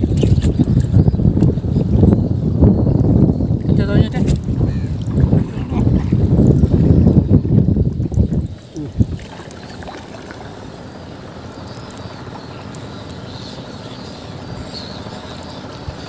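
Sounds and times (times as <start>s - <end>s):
water sloshing around canoe: 3.6s - 13.4s.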